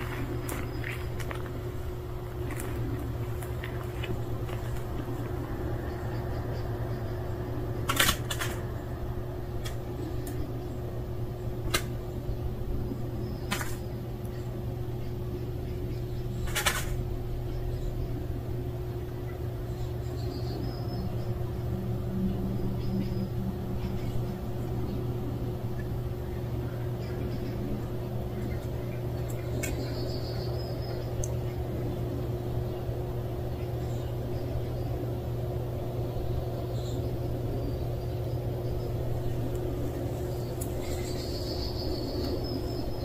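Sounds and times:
constant low hum: 0.0 - 43.0
low outdoor rumble: 0.0 - 43.0
faint bird chirps: 19.0 - 25.0, 25.6 - 35.0, 36.1 - 43.0.

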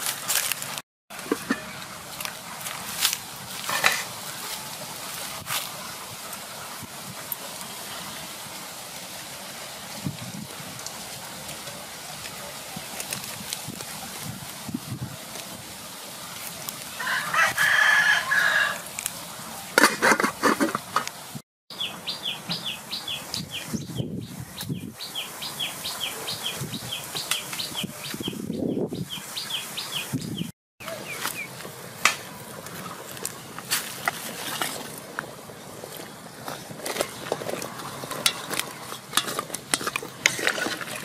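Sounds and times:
rooster crowing: 17.0 - 18.9.

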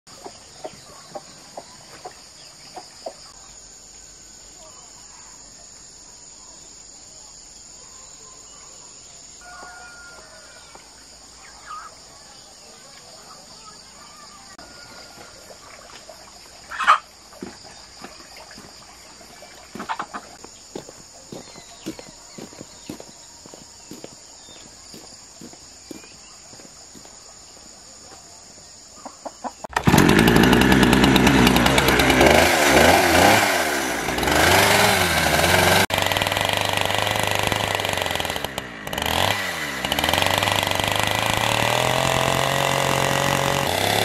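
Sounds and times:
chickens clucking: 0.1 - 3.4, 16.7 - 17.1, 19.3 - 23.0, 29.0 - 29.7
insects buzzing: 0.1 - 44.0.

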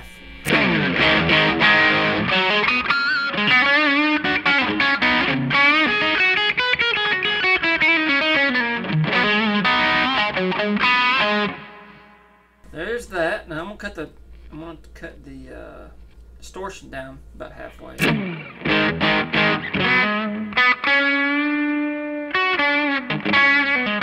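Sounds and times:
distorted electric guitar: 0.0 - 12.5, 18.0 - 24.0.

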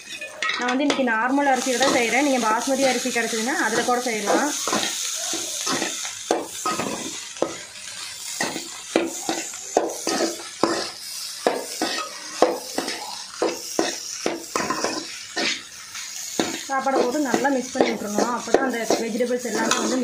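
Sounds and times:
food sizzling: 0.0 - 20.0
metal spatula scraping metal pan: 8.4 - 11.0, 11.6 - 15.7, 16.3 - 20.0.

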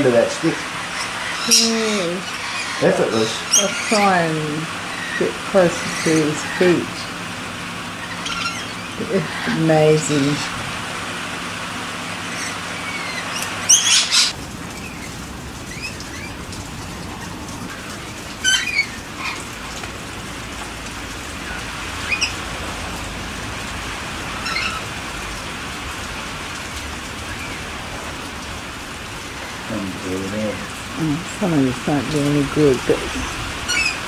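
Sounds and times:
steady rain falling: 0.0 - 34.0
sharp bird calls: 0.6 - 10.6, 12.0 - 19.6, 32.6 - 34.0.

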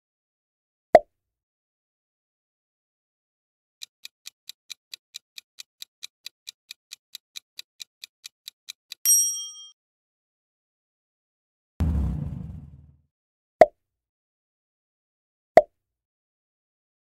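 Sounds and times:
bright chime ding: 9.1 - 9.7.

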